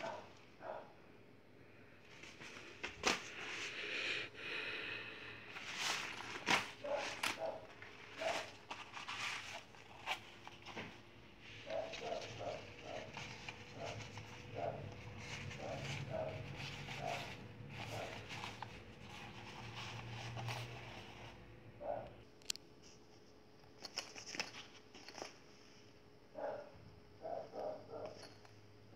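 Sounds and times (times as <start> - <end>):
fabric rustling and crinkling: 5.4 - 21.5.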